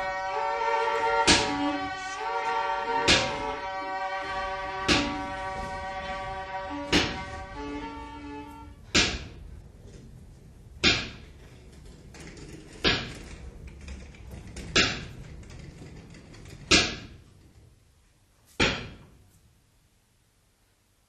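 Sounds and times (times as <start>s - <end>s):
sharp percussive knocks: 1.2s - 1.8s, 3.0s - 3.6s, 4.8s - 5.5s, 6.7s - 7.5s, 8.9s - 9.4s, 10.8s - 11.3s, 16.7s - 17.2s.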